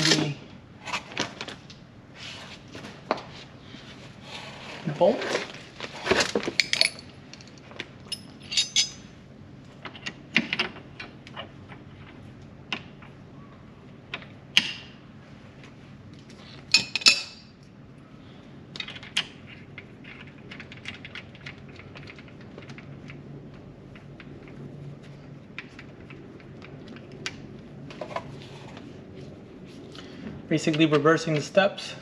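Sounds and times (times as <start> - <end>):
small metal parts clinking: 6.5 - 9.0.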